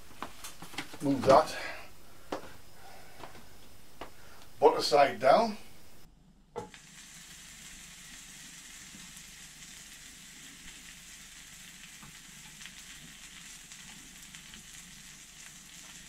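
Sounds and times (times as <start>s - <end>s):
bread sizzling in a frying pan: 6.7s - 16.0s.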